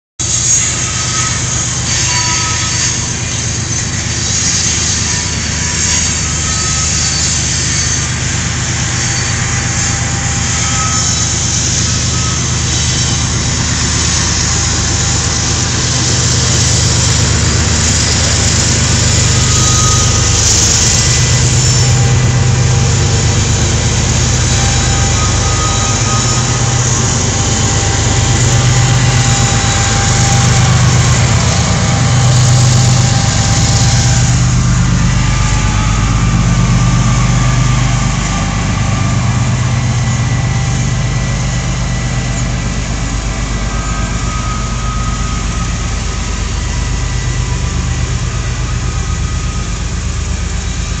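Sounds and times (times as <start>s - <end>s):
freight train rolling past: 0.2s - 51.0s
diesel truck engine idling: 4.9s - 51.0s.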